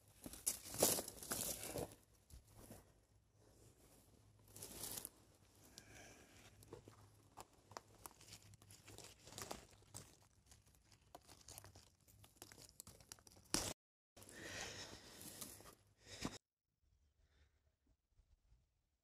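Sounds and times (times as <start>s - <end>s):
dry twigs rustling and crackling: 0.0s - 2.0s, 4.5s - 6.0s, 6.6s - 13.8s.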